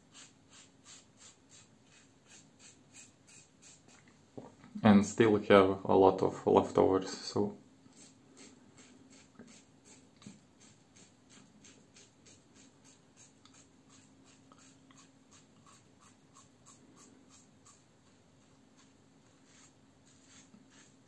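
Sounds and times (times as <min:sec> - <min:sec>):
razor scraping stubble: 0:07.9 - 0:17.8, 0:18.8 - 0:21.0.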